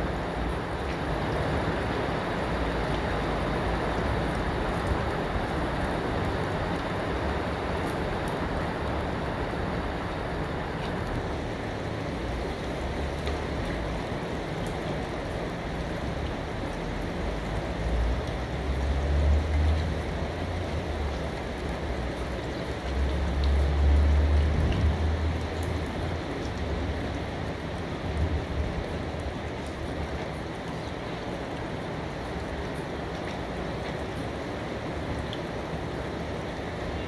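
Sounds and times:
steady rain falling: 0.0s - 37.0s.

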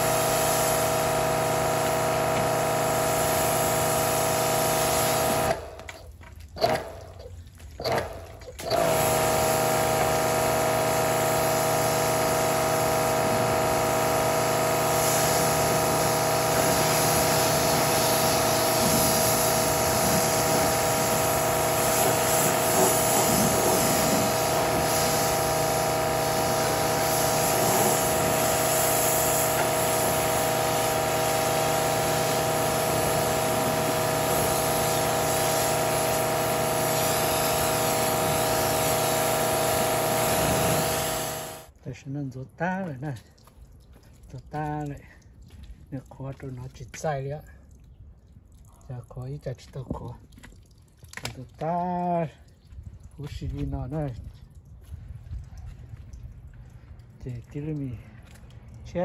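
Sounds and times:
water spraying hiss: 0.0s - 5.7s, 8.7s - 41.7s
pressure washer motor whine: 0.0s - 7.2s, 7.8s - 41.8s.

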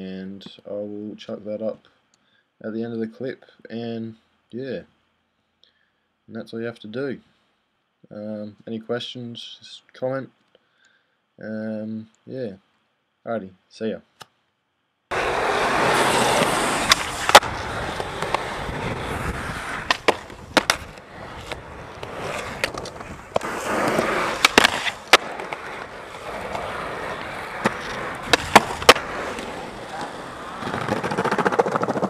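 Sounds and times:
sharp skateboard clacks: 15.1s - 19.0s, 19.6s - 32.0s
skateboard wheels rumbling on pavement: 15.1s - 32.0s.

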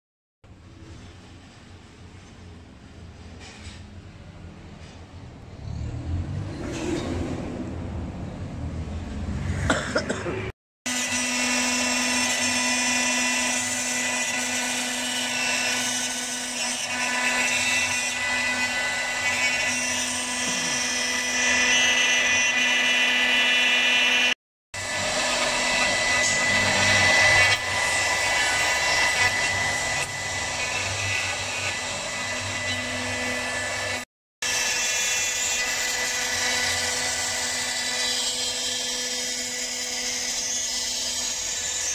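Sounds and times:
router spindle whining: 10.9s - 41.9s.

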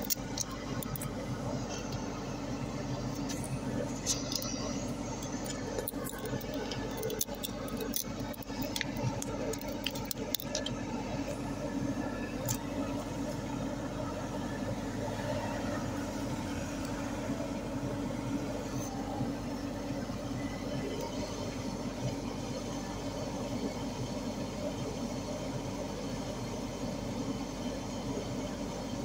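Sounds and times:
phone handling clicks and rubbing: 0.0s - 1.1s, 4.0s - 10.8s
excavator engine running: 0.0s - 29.0s.

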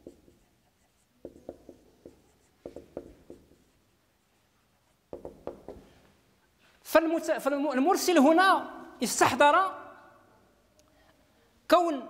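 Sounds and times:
marker pen on whiteboard: 0.0s - 6.2s.

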